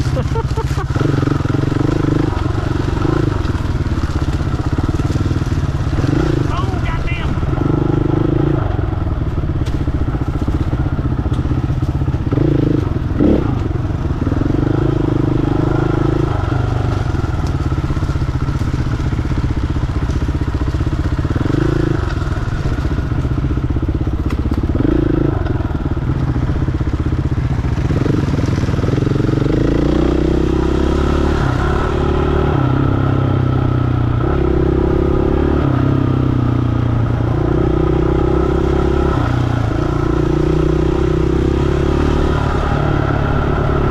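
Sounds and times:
bike knocking and rattling: 0.0 - 8.0, 9.1 - 14.5, 16.6 - 29.1
dirt bike engine revving: 0.0 - 23.7, 24.3 - 43.9.

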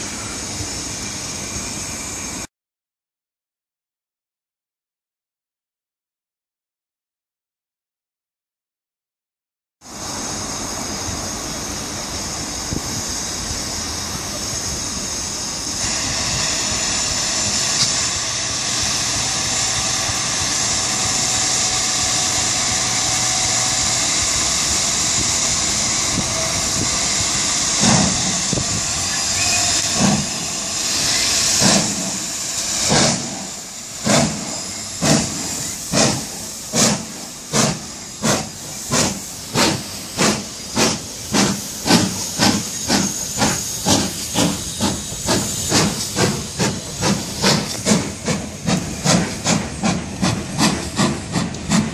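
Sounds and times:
steam locomotive hissing: 0.0 - 2.5, 9.8 - 51.9
locomotive exhaust chuffs: 11.2 - 51.9.

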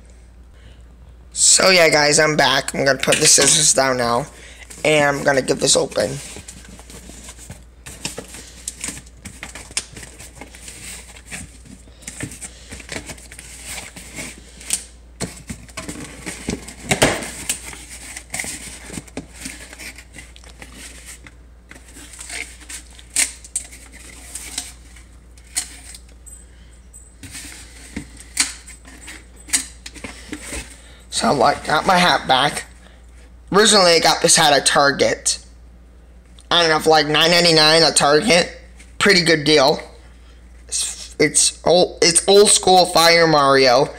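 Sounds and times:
cardboard flaps scraping and rustling: 4.7 - 14.6, 15.2 - 25.9.

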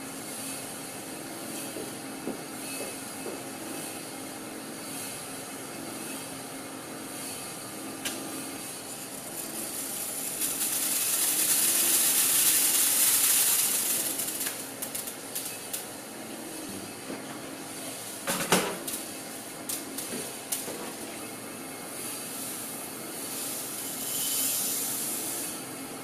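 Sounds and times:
metal pellets pouring: 9.2 - 15.9.

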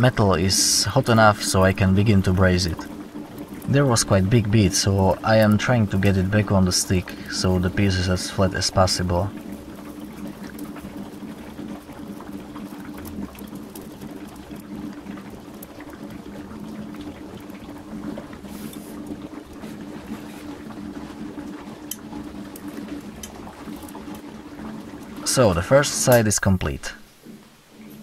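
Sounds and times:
torch flame hissing: 18.4 - 20.6.

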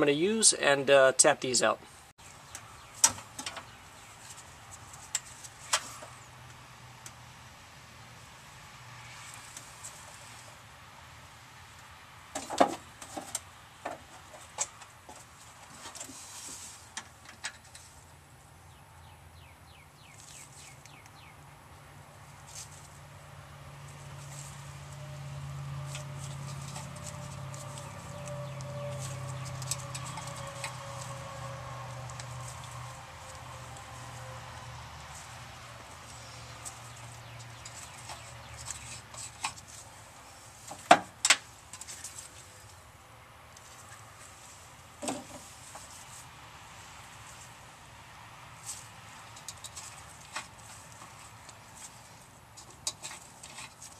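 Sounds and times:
bird chirping: 2.2 - 4.5, 18.6 - 22.6, 26.2 - 31.2, 36.0 - 39.4.

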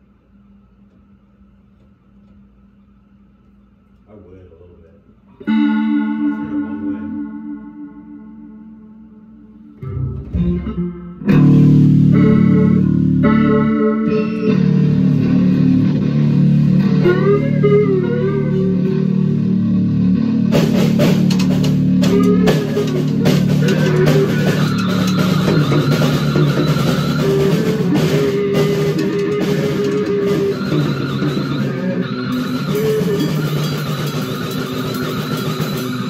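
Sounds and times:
electric bass sustained low notes: 5.4 - 35.8
drum kit with cymbals: 14.2 - 36.0.

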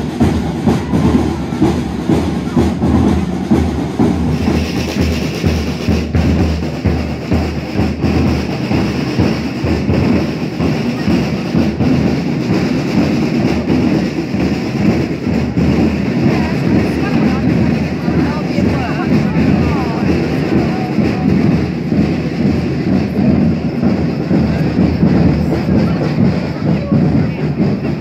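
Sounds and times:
marching band drumbeats: 0.0 - 28.0
street crowd noise: 0.0 - 28.0.

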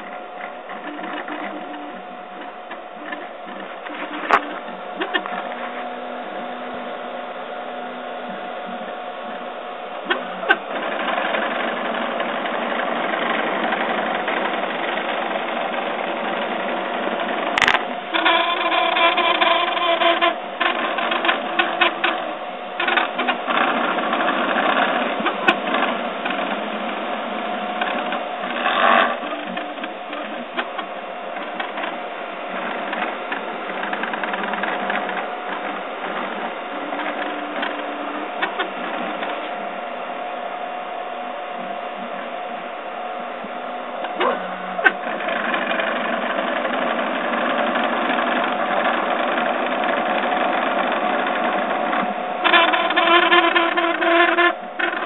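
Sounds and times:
stepper motors whining: 0.0 - 55.0.

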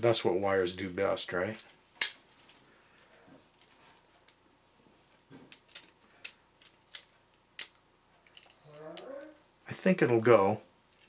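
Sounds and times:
plastic parts clicking together: 5.5 - 8.6.

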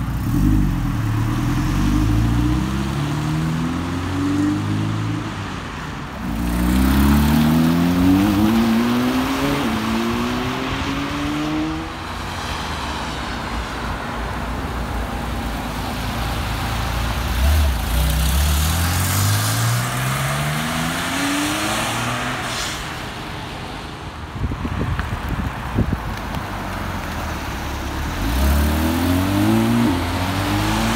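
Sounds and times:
sports car engines accelerating: 0.0 - 5.4, 6.2 - 12.0, 27.1 - 30.9
tyres hissing on wet road: 6.1 - 30.9.

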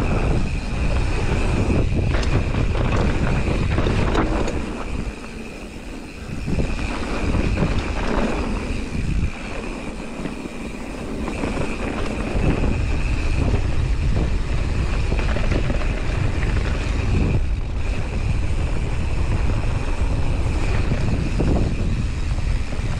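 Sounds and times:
bike rattling over trail: 0.0 - 22.9
steady high buzz: 0.0 - 22.9
wind buffeting microphone: 0.0 - 22.9.

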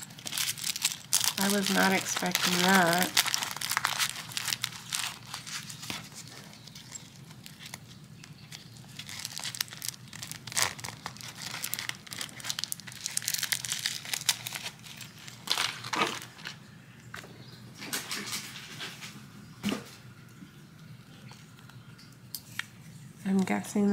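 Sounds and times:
plastic pouch crinkling: 0.0 - 16.7.

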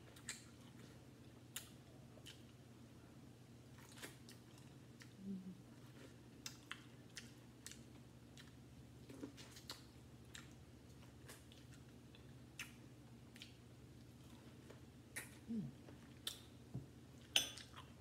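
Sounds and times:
low steady hum: 0.0 - 18.0
chewing corn on the cob: 5.8 - 16.5.

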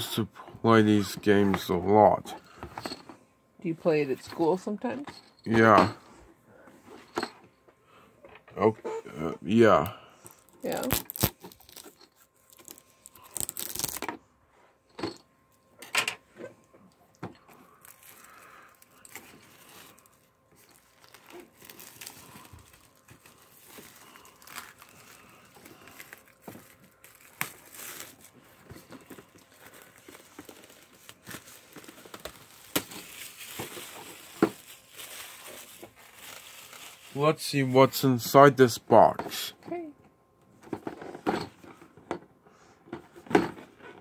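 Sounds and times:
plastic wrap crinkling: 10.3 - 14.1, 17.6 - 37.3
plastic wrap ripping: 10.4 - 14.1, 17.8 - 28.5, 29.3 - 37.2.

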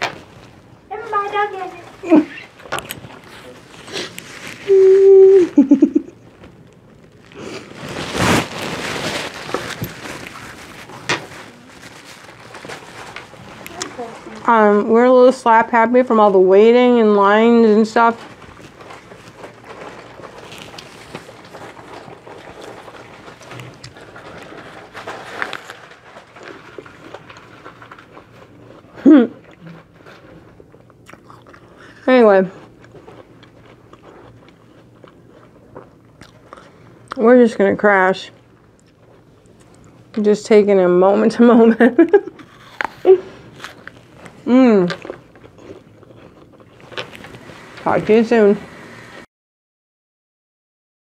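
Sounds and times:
woman humming and chuckling: 4.7 - 6.2, 29.0 - 29.8, 41.9 - 43.4
apple crunching: 18.2 - 32.0, 32.6 - 37.2, 42.4 - 47.5.

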